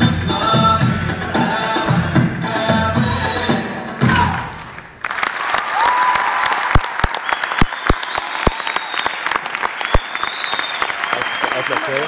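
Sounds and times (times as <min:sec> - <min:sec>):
audience applauding: 0:04.7 - 0:12.0.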